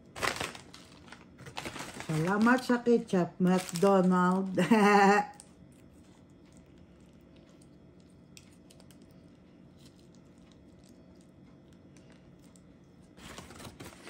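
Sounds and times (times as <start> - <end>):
paper packets rustling: 0.0 - 4.9, 13.2 - 14.0
faint low hum: 0.0 - 14.0.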